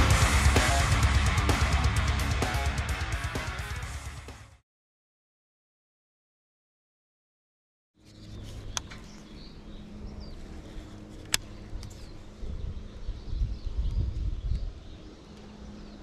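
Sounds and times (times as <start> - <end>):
steady low hum: 0.0 - 3.0, 8.1 - 16.0
wind buffeting microphone: 11.8 - 15.2.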